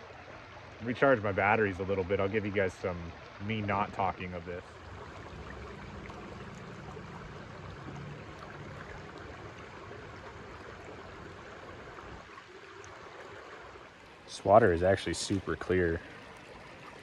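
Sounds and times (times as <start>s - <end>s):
creek flowing over rocks: 0.0s - 17.0s.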